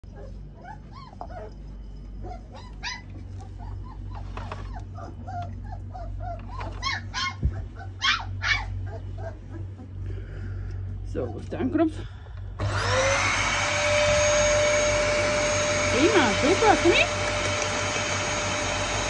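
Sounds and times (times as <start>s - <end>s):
puppies whimpering and yipping: 0.1s - 10.2s
puppy squeals: 0.2s - 1.6s, 2.2s - 9.9s.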